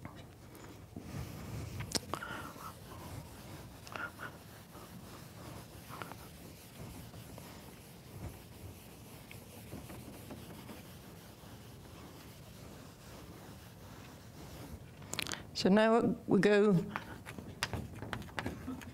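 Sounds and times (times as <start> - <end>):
eraser rubbing on chalkboard: 0.9 - 15.1.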